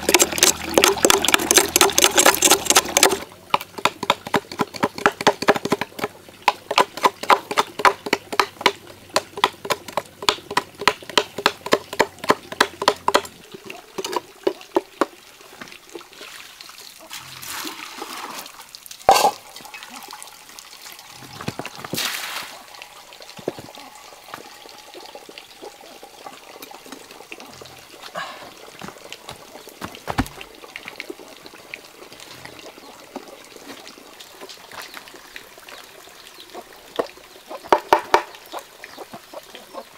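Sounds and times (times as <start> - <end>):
blade chipping and scraping wood: 0.0 - 13.3.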